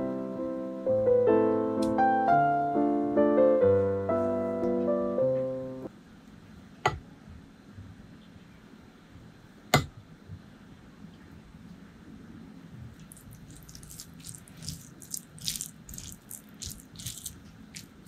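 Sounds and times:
soft solo piano music: 0:00.0 - 0:05.9.

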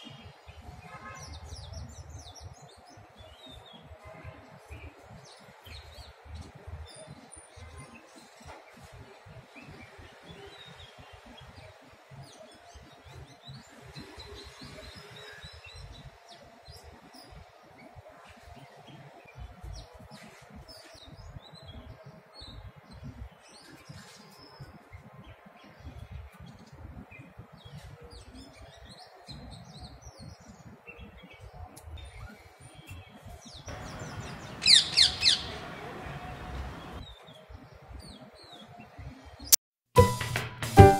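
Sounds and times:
sharp downward-sweeping bird calls: 0:33.7 - 0:36.0
birds chirping: 0:33.7 - 0:37.4.

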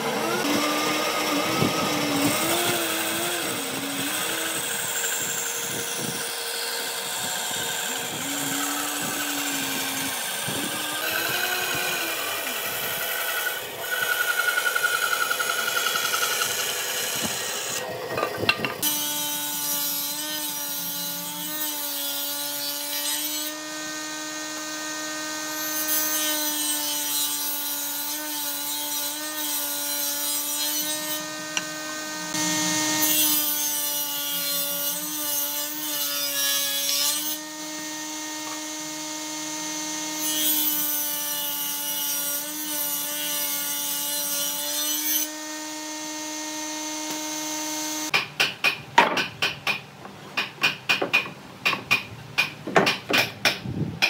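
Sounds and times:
saw cutting wood hiss: 0:00.0 - 0:17.9, 0:30.5 - 0:35.0
table saw humming: 0:00.0 - 0:48.1.

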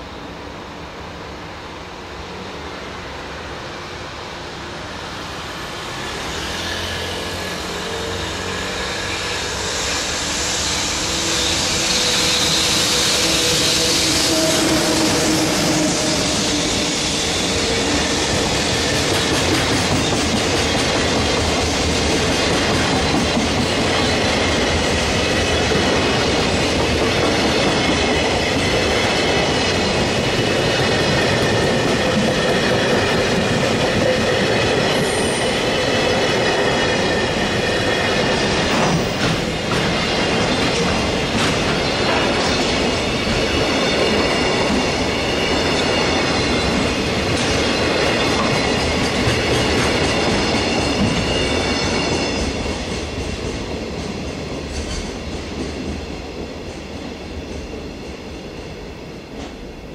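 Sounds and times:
freight train passing: 0:00.0 - 0:59.9
train wheels clacking on rail joints: 0:10.2 - 0:58.3.

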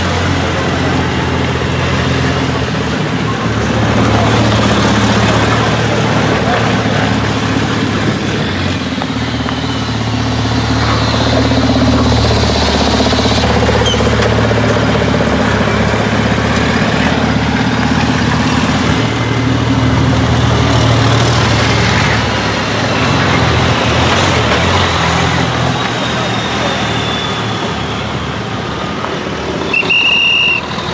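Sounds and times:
diesel truck engines rumbling: 0:00.0 - 0:30.9
faint thin whistle: 0:26.1 - 0:28.3, 0:29.7 - 0:30.8.

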